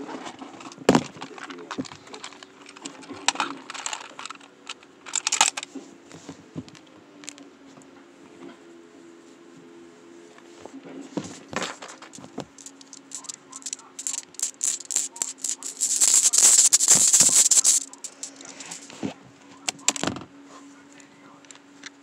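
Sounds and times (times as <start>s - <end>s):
fidget toy rattling clicks: 2.1s - 5.6s, 12.0s - 18.9s.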